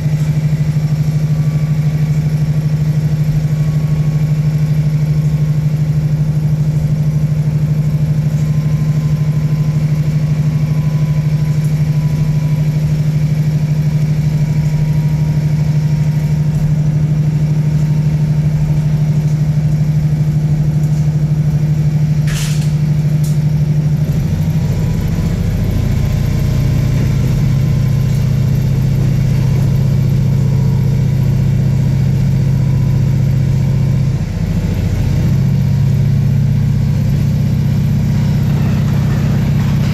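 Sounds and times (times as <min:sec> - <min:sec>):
deeper rumble: 0:00.0 - 0:39.9
diesel railcar engine droning: 0:00.0 - 0:39.9.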